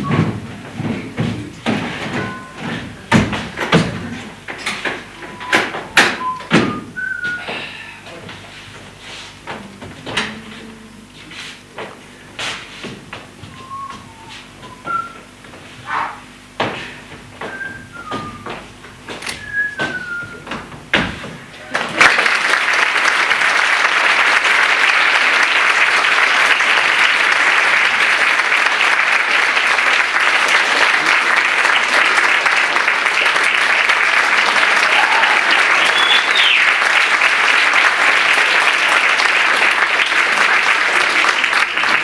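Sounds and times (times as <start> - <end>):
audience applauding: 21.7 - 42.0.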